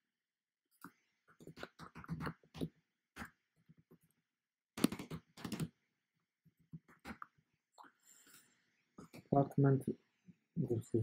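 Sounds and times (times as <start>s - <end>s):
typing on computer keyboard: 4.8s - 5.7s.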